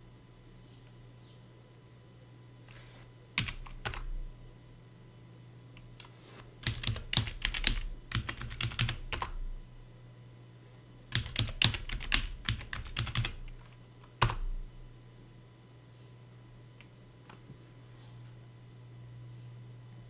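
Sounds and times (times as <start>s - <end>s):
keyboard typing: 3.4s - 4.1s, 6.0s - 9.4s, 11.1s - 14.6s.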